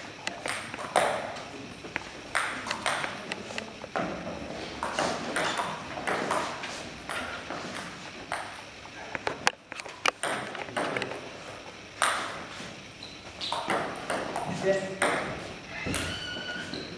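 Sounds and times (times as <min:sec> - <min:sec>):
table tennis ball clicking: 0:01.9 - 0:04.0.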